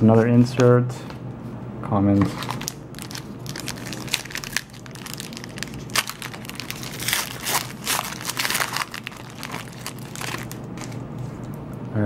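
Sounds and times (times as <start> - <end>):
foil wrapper crinkling and tearing: 2.4 - 11.0.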